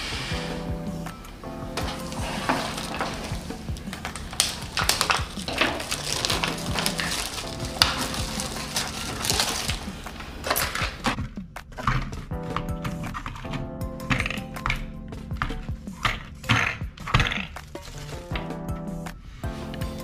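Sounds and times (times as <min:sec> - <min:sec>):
plastic wrap crinkling: 0:00.5 - 0:11.2.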